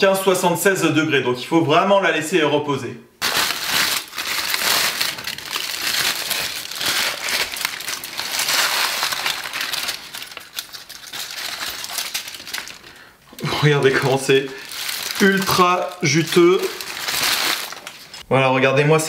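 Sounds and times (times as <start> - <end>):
aluminium foil crinkling: 3.2 - 18.2.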